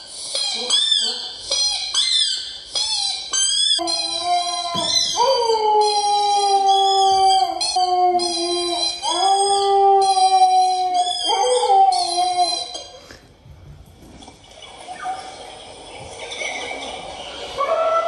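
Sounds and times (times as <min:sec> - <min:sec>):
dog howling: 0:03.8 - 0:12.8, 0:17.6 - 0:18.0.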